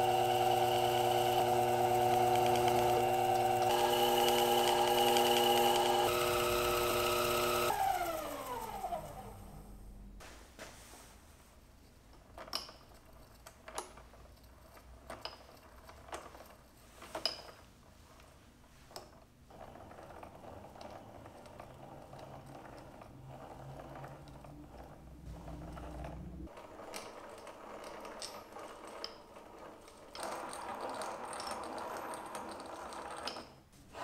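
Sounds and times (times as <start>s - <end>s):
metal lathe cutting metal rod: 0.0s - 8.7s.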